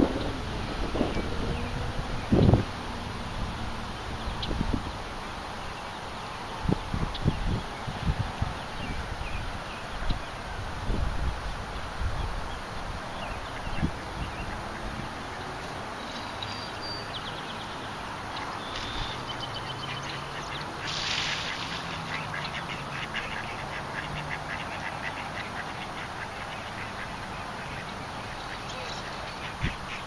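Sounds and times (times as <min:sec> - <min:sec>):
rippling water: 0:00.0 - 0:30.0
wind: 0:00.0 - 0:30.0
ducks quacking: 0:19.9 - 0:30.0.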